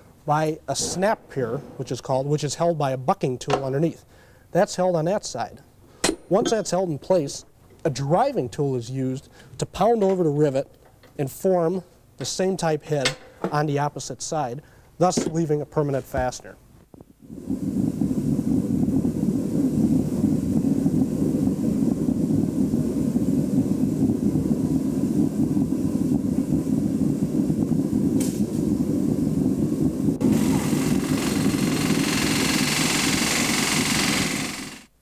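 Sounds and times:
forge burning with low rush: 0.0s - 5.6s, 16.8s - 35.0s.

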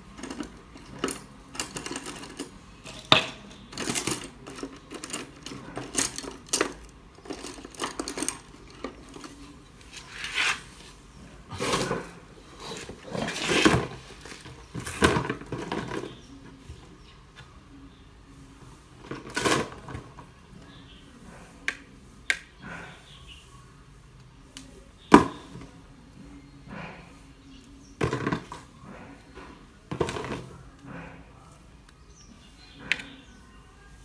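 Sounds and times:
tools clattering: 0.0s - 10.7s.

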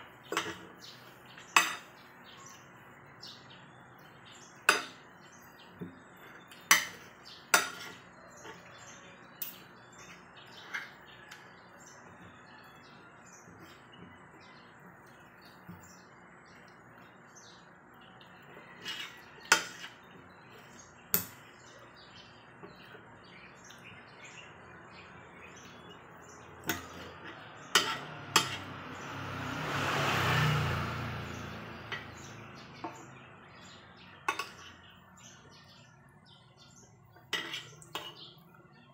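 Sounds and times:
cutlery clinking on a ceramic plate: 0.3s - 0.7s, 1.6s - 2.0s, 6.6s - 8.7s, 26.6s - 28.7s, 34.3s - 34.7s, 37.3s - 38.3s.

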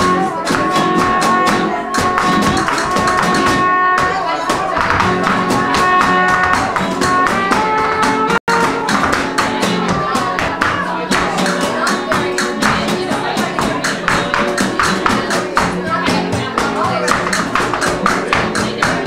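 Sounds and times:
horn: 0.0s - 10.4s
acoustic guitars: 0.0s - 19.0s
cajon strikes: 0.0s - 19.0s
dancer's footwork: 0.0s - 19.0s.

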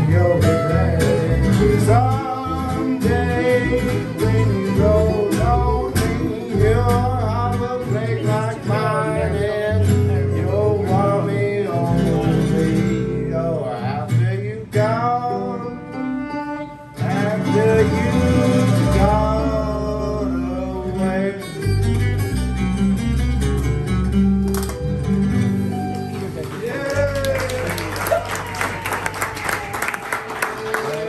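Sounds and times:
fiddle melody: 0.0s - 12.1s, 14.9s - 26.6s
strummed acoustic guitars: 0.0s - 26.7s
bass notes: 0.0s - 28.0s.

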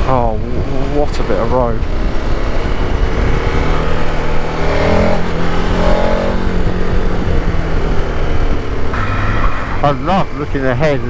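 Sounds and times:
motorcycle engine running: 0.0s - 10.0s
wind rush on microphone: 0.0s - 10.5s.

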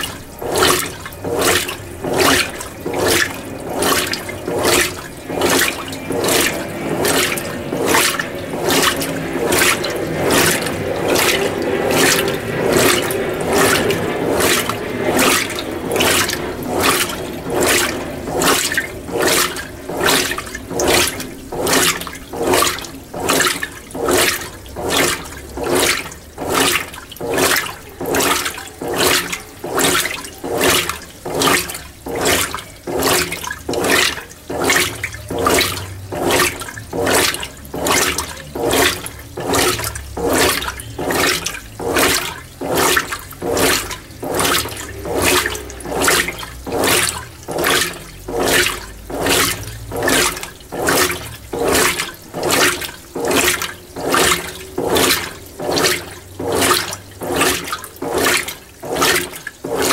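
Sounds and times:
washing machine sloshing water: 0.0s - 59.9s.

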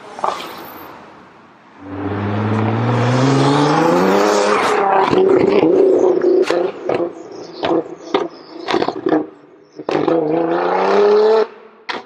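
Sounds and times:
car engine revving hard: 1.8s - 7.8s, 9.9s - 11.5s.

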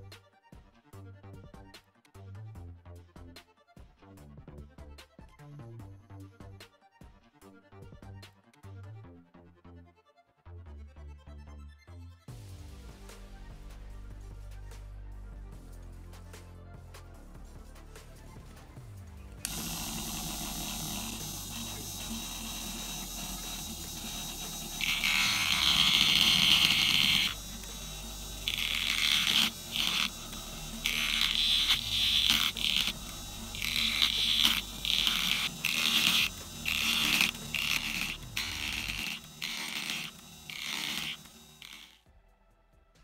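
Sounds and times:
cutter grinding plastic: 19.4s - 42.0s.

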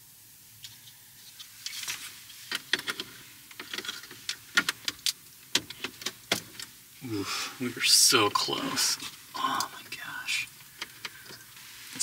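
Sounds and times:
plastic parts clicking and knocking: 2.5s - 6.7s.

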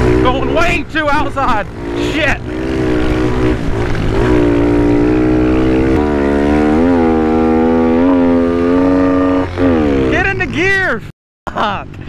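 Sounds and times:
small motorbike engine revving high: 1.5s - 10.2s.

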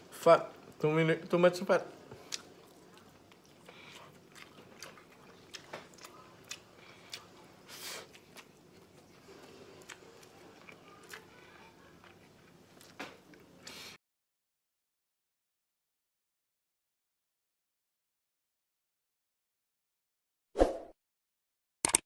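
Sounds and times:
faint chewing: 2.0s - 14.0s.

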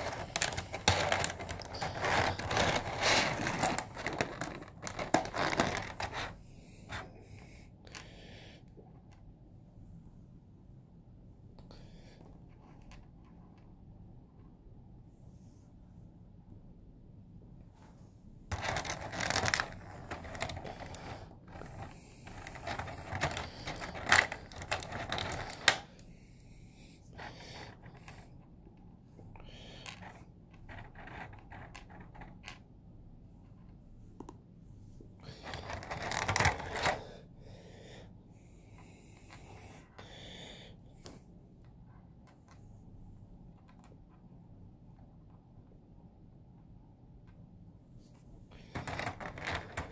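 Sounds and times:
plastic figure parts rustling: 0.0s - 7.1s, 18.5s - 26.1s, 27.1s - 28.5s, 29.4s - 32.7s, 35.2s - 37.1s, 48.0s - 49.9s.

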